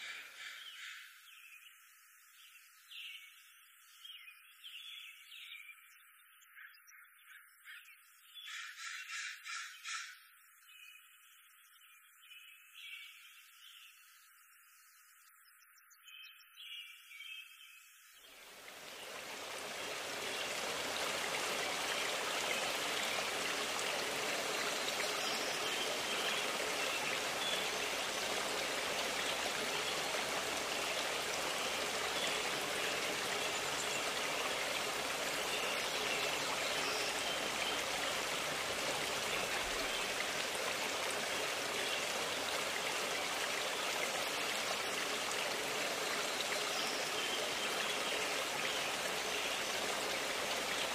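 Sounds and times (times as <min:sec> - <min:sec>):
forest stream rushing: 0:18.2 - 0:50.9.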